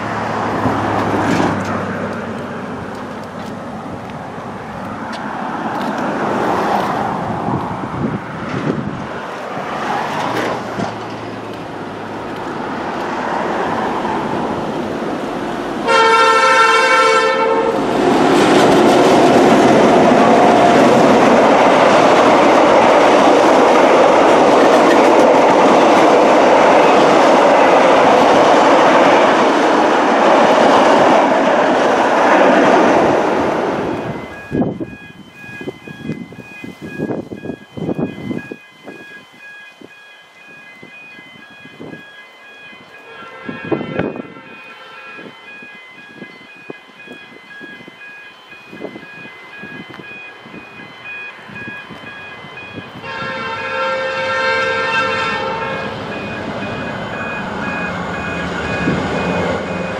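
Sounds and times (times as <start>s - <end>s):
wheels clattering over rails: 0.0s - 3.5s
diesel locomotives running: 0.0s - 59.9s
train horn blast: 15.8s - 17.9s, 43.0s - 45.4s, 53.0s - 56.0s.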